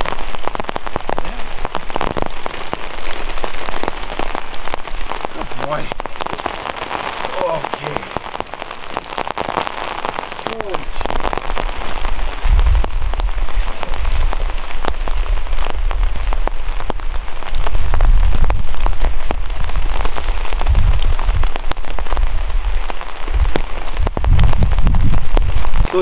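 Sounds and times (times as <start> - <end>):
steady rain pattering: 0.0 - 26.0
wind rumble on microphone: 11.1 - 26.0.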